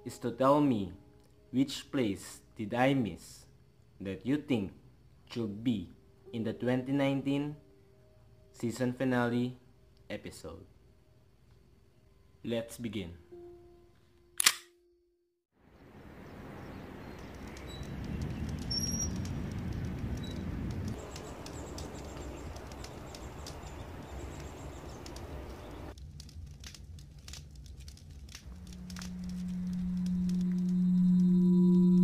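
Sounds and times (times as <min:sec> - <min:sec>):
low sustained music tone: 0:00.0 - 0:16.4, 0:28.5 - 0:32.0
faint bird chirps: 0:15.7 - 0:19.3, 0:21.0 - 0:25.9
light clicks: 0:17.1 - 0:25.8.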